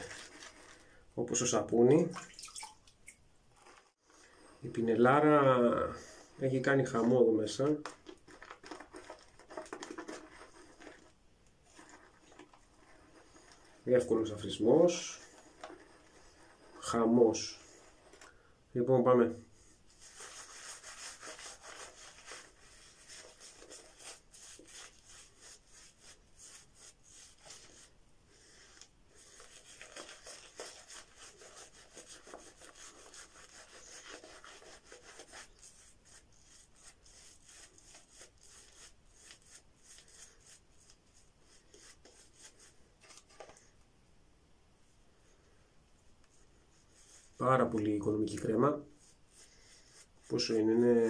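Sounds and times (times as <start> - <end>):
shaving brush scrubbing skin: 0.0 - 0.9, 6.0 - 18.3, 19.9 - 27.9, 28.5 - 43.4, 46.7 - 51.0.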